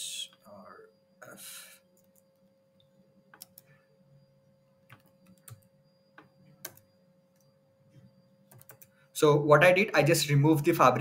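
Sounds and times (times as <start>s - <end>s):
faint steady hum: 0.0s - 11.0s
keyboard keystrokes: 4.9s - 5.7s, 6.6s - 6.8s, 8.5s - 8.9s.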